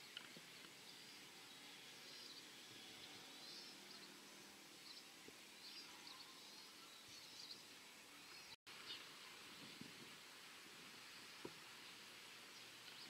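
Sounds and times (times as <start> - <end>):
faint bird chirps and trills: 0.0 - 10.2.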